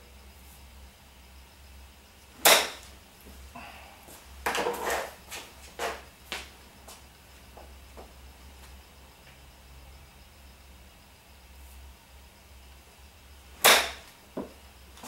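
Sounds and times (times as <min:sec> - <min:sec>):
golf club striking ball: 0:02.4 - 0:02.9, 0:13.6 - 0:14.1.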